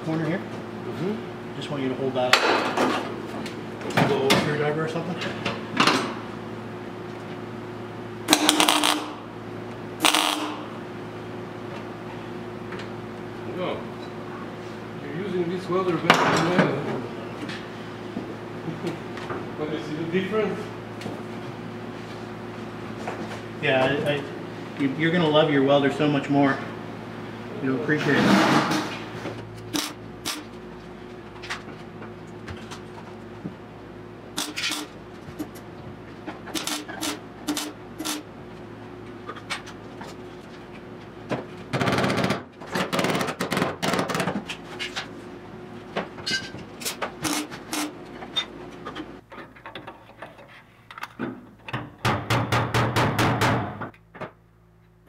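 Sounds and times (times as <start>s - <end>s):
welding arc sputtering: 8.3s - 9.2s, 10.0s - 10.7s, 29.7s - 30.5s, 34.4s - 35.0s, 36.5s - 38.3s.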